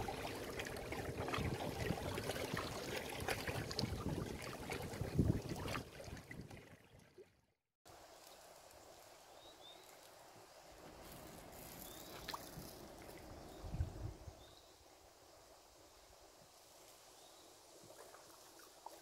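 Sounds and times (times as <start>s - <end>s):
waves lapping against rocks: 0.0s - 7.0s
wind: 0.0s - 19.0s.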